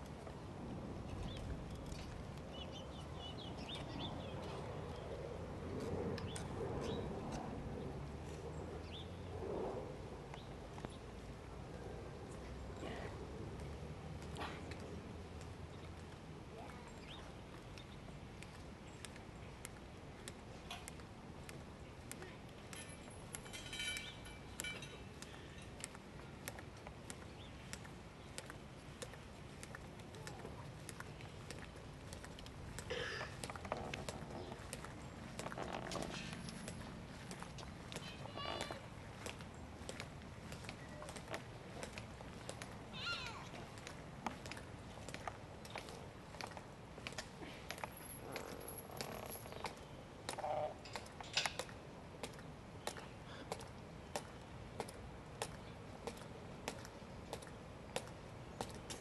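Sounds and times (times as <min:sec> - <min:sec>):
birds chirping: 0:01.1 - 0:05.2, 0:30.2 - 0:43.5.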